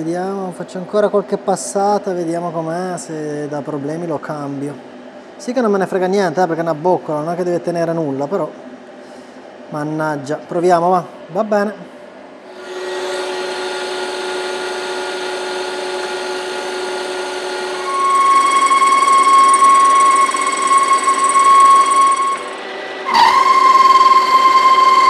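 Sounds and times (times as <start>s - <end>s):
high-pitched ring of cutting tool: 12.5s - 25.0s
metal lathe running: 12.5s - 25.0s.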